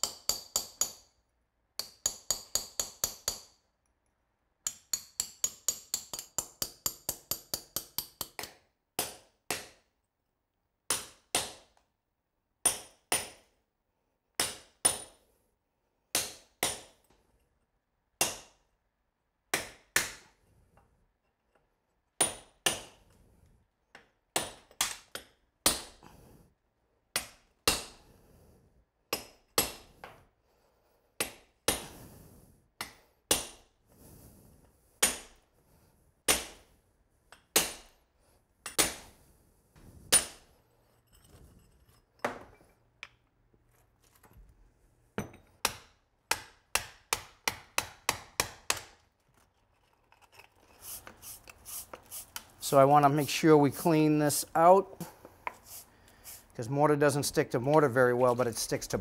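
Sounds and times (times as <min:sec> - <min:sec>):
hammer striking steel chisel: 0:00.0 - 0:01.2, 0:01.8 - 0:03.6, 0:04.6 - 0:09.8, 0:12.6 - 0:13.5, 0:14.4 - 0:15.2, 0:22.2 - 0:23.0, 0:24.0 - 0:26.0, 0:38.6 - 0:39.1, 0:40.1 - 0:43.2, 0:45.2 - 0:49.0.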